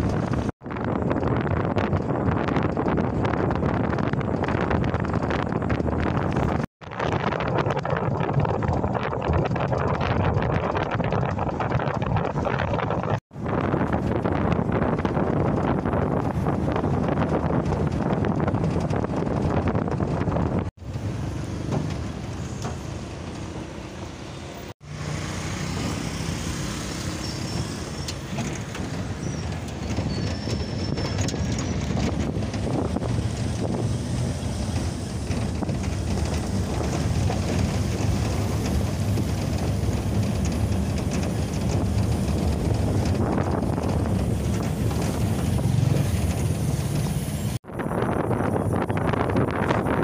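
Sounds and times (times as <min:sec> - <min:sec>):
road and engine noise in cabin: 0:13.2 - 0:48.1.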